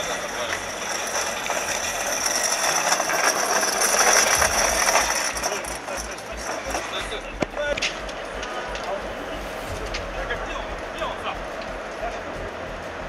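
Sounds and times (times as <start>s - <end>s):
casters rattling over rough ground: 0.0s - 9.0s.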